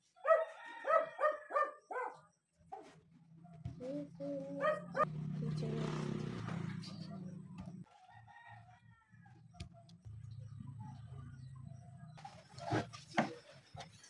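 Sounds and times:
rooster crowing: 0:00.2 - 0:01.6, 0:08.0 - 0:09.5.

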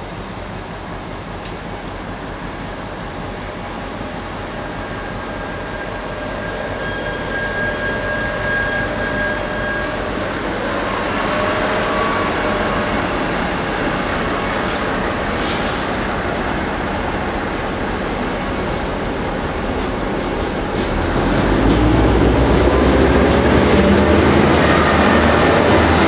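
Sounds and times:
train passing: 0:00.0 - 0:26.0
high squeal: 0:04.7 - 0:13.2.

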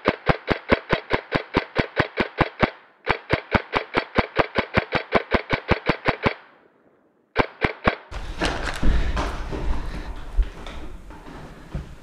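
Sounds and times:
airsoft gun firing: 0:00.0 - 0:06.5.

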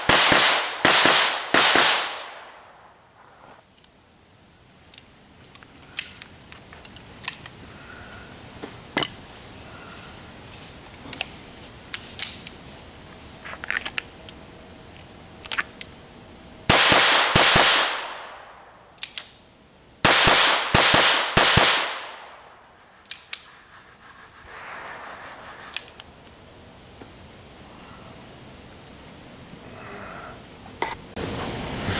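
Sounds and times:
gunshots echoing: 0:00.0 - 0:02.8, 0:16.7 - 0:18.6, 0:20.0 - 0:22.6.

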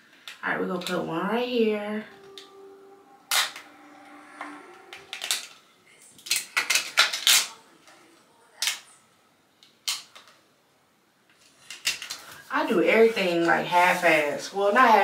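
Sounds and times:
plastic clicking and scraping on tile: 0:11.3 - 0:12.4.

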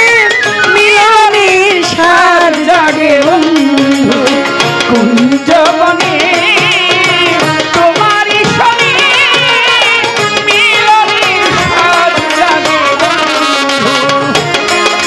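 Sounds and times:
hand drum beat: 0:00.0 - 0:15.0
violin melody with vibrato: 0:00.0 - 0:15.0.

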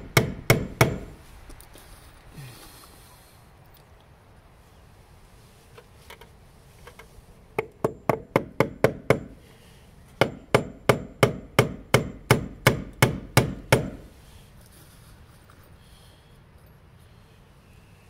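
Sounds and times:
hammer striking wood: 0:00.0 - 0:01.2, 0:07.6 - 0:09.4, 0:10.2 - 0:14.1.

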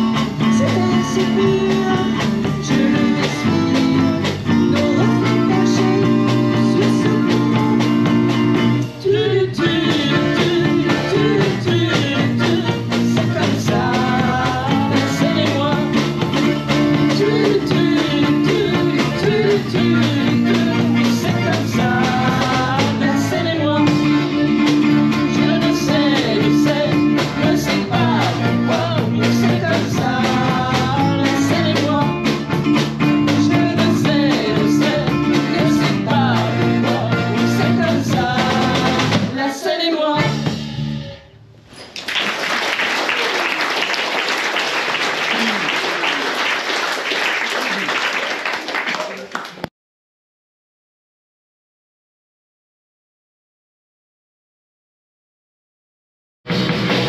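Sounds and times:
people singing: 0:00.0 - 0:08.2, 0:08.9 - 0:40.6
live band playing a song: 0:00.0 - 0:42.3, 0:56.5 - 0:57.0
audience applauding: 0:41.8 - 0:49.7.

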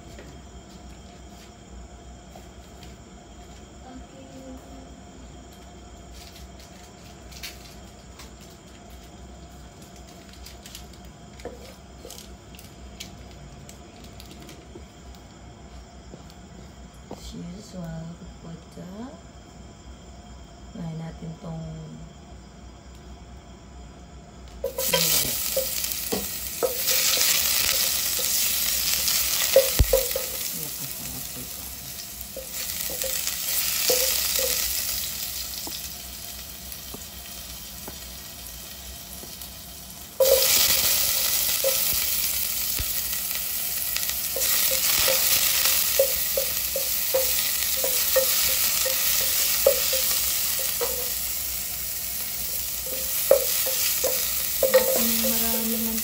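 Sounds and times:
food sizzling in hot oil: 0:24.6 - 0:56.0.

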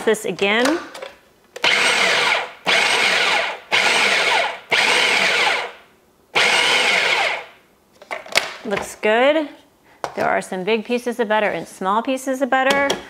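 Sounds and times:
food processor whirring: 0:01.6 - 0:05.8, 0:06.4 - 0:07.6.

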